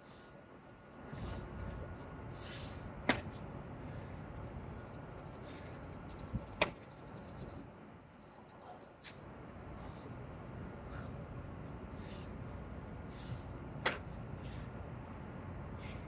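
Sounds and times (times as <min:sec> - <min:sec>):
low wind rumble: 0:00.4 - 0:08.1, 0:09.2 - 0:16.0
hard breathing: 0:01.0 - 0:02.9, 0:10.8 - 0:16.0.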